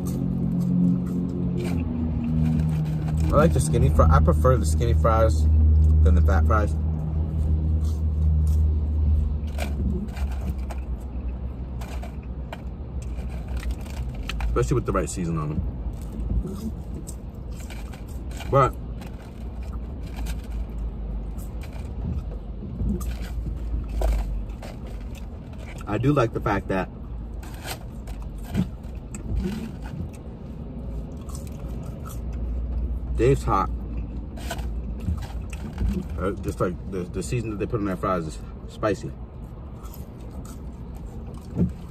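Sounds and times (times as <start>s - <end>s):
chewing fries: 0.0s - 3.9s, 6.9s - 15.2s, 15.9s - 26.2s, 27.3s - 33.1s, 33.7s - 36.6s, 39.7s - 41.9s
low vehicle rumble: 0.0s - 41.9s
person chewing food: 27.9s - 32.9s, 33.8s - 36.2s, 39.7s - 41.9s.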